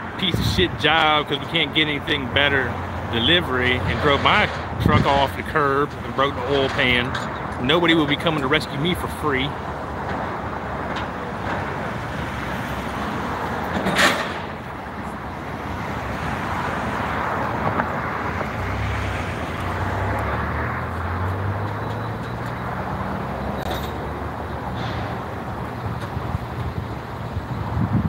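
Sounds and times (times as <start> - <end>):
low engine hum: 0.0 - 28.0
road traffic passing: 0.0 - 28.0.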